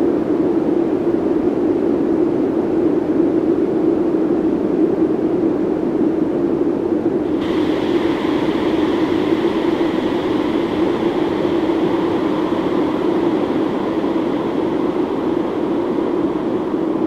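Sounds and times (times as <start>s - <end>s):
loud distorted noisy drone: 7.2s - 17.0s.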